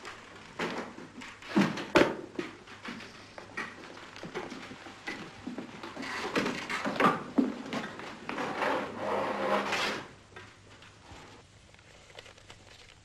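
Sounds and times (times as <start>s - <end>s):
drawer sliding scrape: 8.3s - 10.2s.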